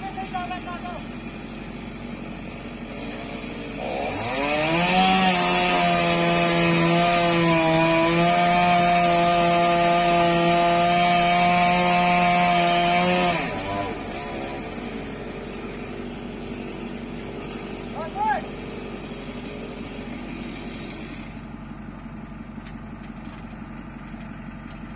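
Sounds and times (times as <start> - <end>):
chainsaw cutting wood: 0.0 - 24.9
low engine hum: 18.6 - 24.9.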